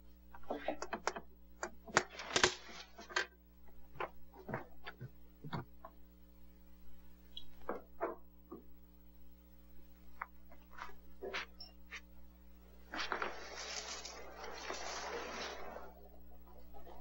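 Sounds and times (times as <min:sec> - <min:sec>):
steady low hum: 0:00.0 - 0:17.0
rustling: 0:12.8 - 0:17.0.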